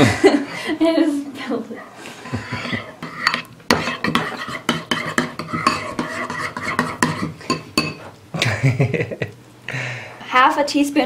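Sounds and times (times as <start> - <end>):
spoon scraping thick dressing: 2.0 - 8.1
spoon clinking against bowl: 2.6 - 8.1.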